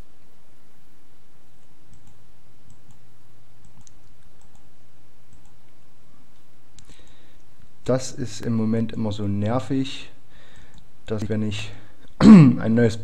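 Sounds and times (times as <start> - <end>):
low hum and hiss: 0.0 - 13.0
computer mouse clicks: 1.6 - 3.0, 3.6 - 4.7, 5.3 - 5.8, 10.5 - 11.3.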